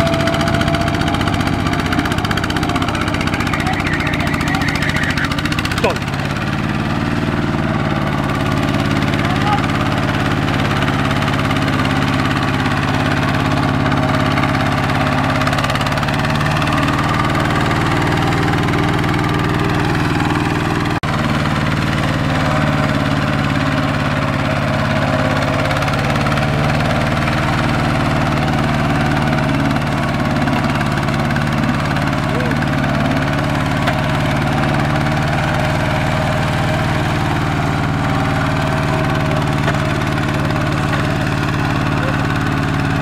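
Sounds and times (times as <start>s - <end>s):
diesel engine running under load: 0.0s - 43.0s.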